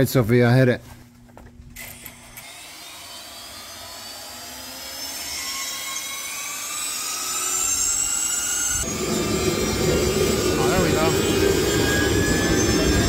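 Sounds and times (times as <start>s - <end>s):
jet engines spooling up: 7.8s - 13.0s
deep rushing roar: 8.8s - 13.0s.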